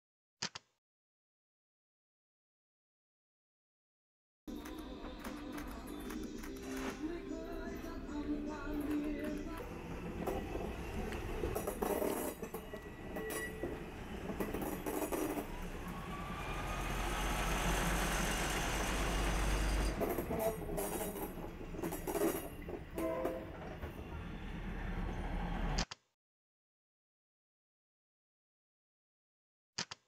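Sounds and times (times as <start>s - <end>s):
railcar engine rumble: 4.5s - 25.8s
train wheels on rails: 8.5s - 25.8s.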